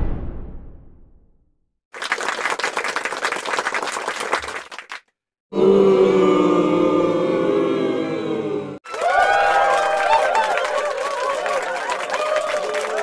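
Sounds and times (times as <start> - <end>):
applause: 1.9 - 5.1, 8.8 - 13.0.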